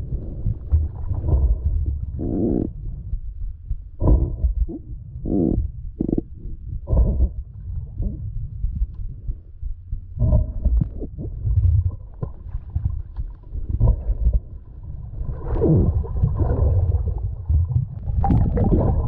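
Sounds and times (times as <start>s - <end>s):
muffled underwater rumble: 0.0s - 19.0s.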